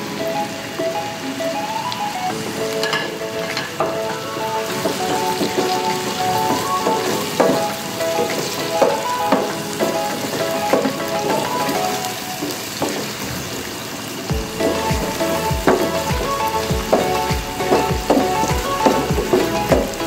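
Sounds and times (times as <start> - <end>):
onions sizzling in hot oil: 10.1 - 14.3.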